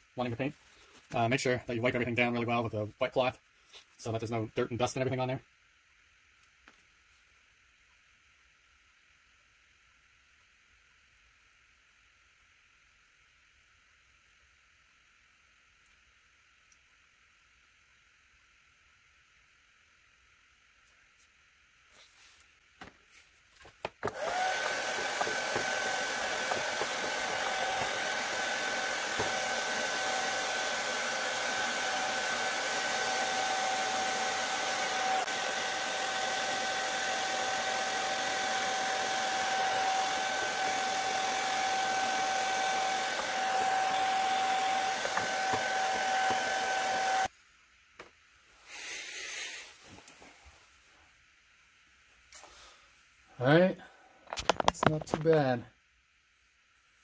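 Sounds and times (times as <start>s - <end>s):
hair dryer blowing with motor whine: 24.0s - 47.3s.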